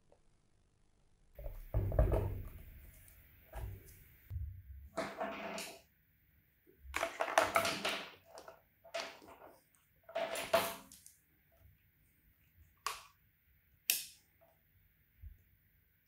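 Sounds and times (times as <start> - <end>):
rustling and knocks of plastic: 1.4 - 2.8.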